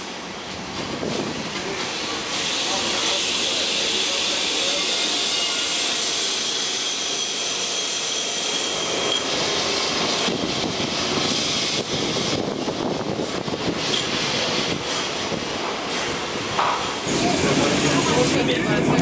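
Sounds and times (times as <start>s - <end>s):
tram wheels rumbling on rails: 0.0s - 19.0s.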